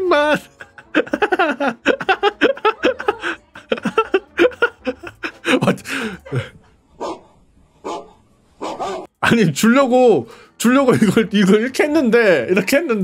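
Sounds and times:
man laughing hard: 0.4s - 6.6s.

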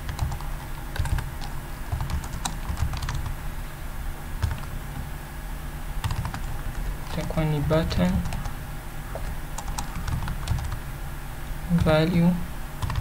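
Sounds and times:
typing on computer keyboard: 0.0s - 3.3s, 6.0s - 6.5s, 9.2s - 10.8s, 12.8s - 13.0s.

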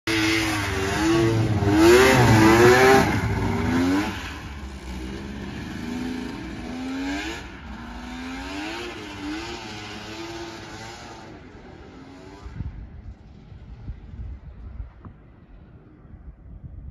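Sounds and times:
snowmobile engine revving: 0.1s - 12.6s.

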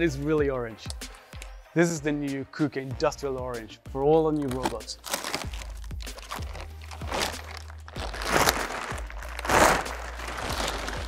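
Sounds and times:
plastic cover crinkling: 4.3s - 11.0s
plastic crackling bursts: 4.4s - 11.0s.

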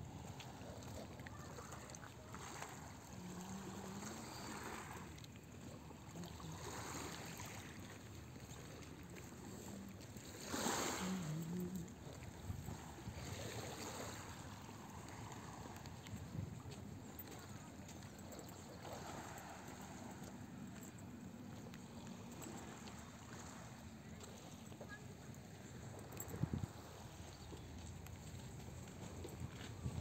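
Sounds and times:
waves lapping on pebble shore: 1.3s - 17.6s, 18.7s - 20.6s.

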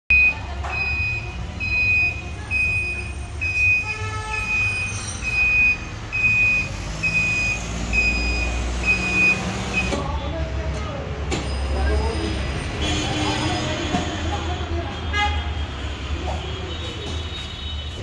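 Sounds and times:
vehicle reversing beeper: 0.1s - 10.0s
traffic rumble: 0.1s - 18.0s.

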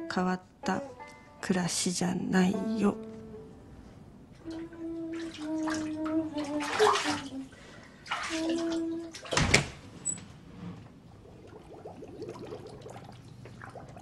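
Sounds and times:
water splashing in a bathtub: 4.4s - 9.9s, 10.8s - 14.0s.

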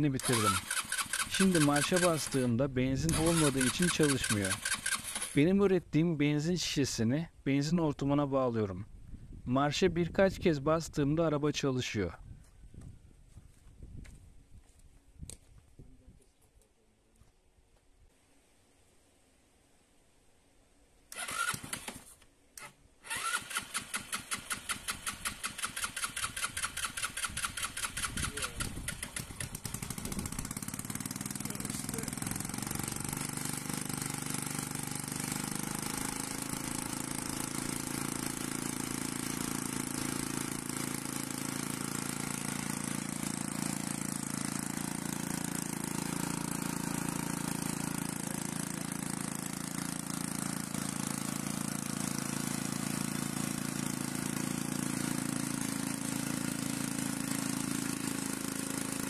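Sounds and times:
scooter engine idling: 0.0s - 2.5s, 3.1s - 5.4s, 23.1s - 59.0s
scooter starter cranking: 0.0s - 5.4s, 21.1s - 50.9s.

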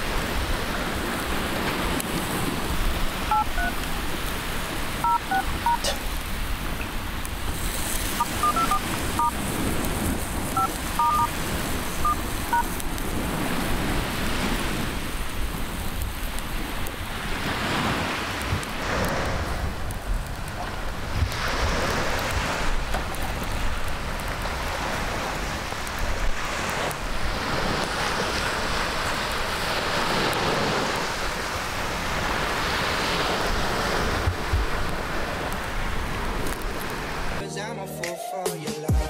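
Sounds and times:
steady rushing background noise: 0.0s - 32.1s
phone keypad beeps: 3.3s - 3.8s, 5.0s - 6.0s, 8.2s - 9.4s, 10.6s - 11.3s, 12.0s - 12.8s.

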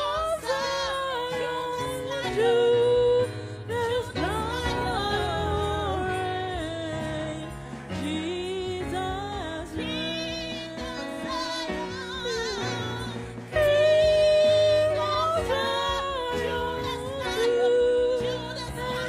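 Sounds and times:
instrumental backing music: 0.0s - 19.0s
woman singing into microphone: 0.0s - 19.0s.

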